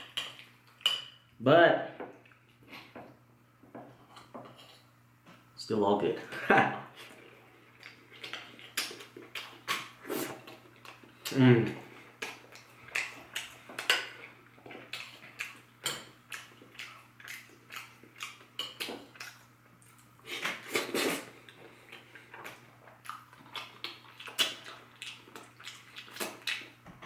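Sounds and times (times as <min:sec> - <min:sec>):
eating mouth sounds: 0:16.3 - 0:26.8.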